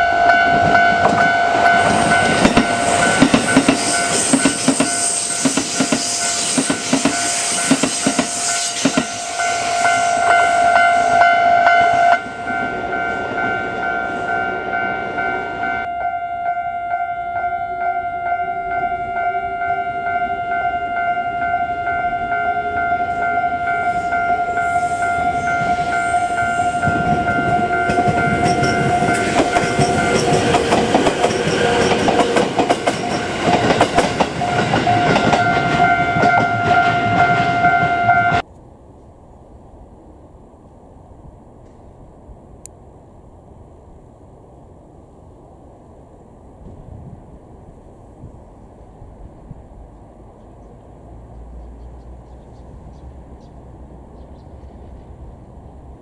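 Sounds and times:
level-crossing warning bell: 0.0 - 38.4
electric train rumbling past: 0.0 - 56.0
train clattering over rail joints: 0.2 - 13.6, 25.2 - 38.4.

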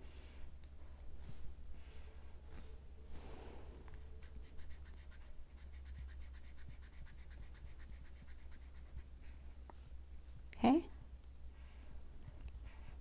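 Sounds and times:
marker scratching on paper: 4.0 - 10.0.

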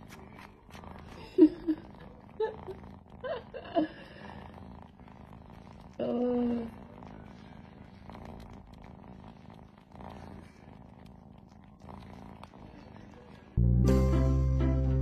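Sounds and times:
kitten purring: 0.0 - 15.0
music: 13.6 - 15.0.

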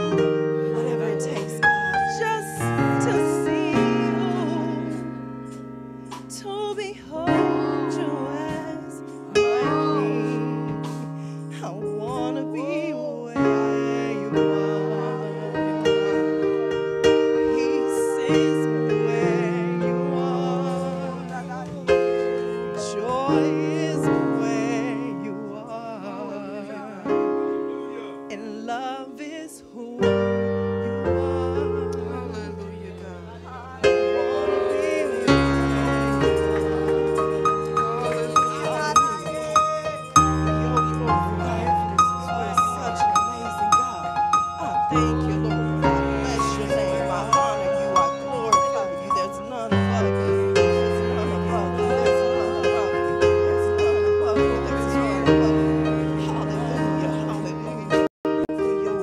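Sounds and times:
held keyboard chords: 0.0 - 59.0
voices singing: 0.0 - 59.0.

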